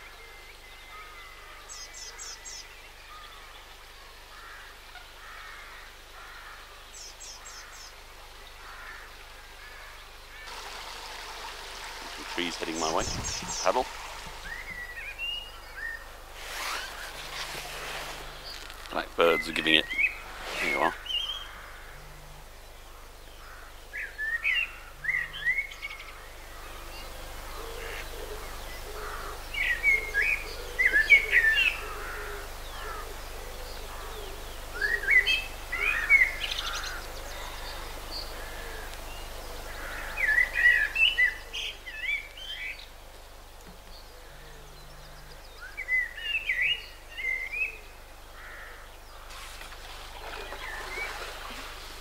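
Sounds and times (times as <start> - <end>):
blackbird singing: 12.2 - 16.0, 18.4 - 21.7, 23.2 - 42.9, 43.9 - 49.1.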